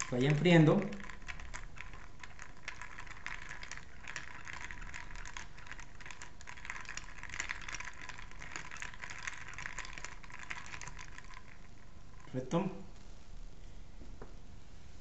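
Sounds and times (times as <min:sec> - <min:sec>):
ice clinking in glass while stirred: 0:00.0 - 0:11.6.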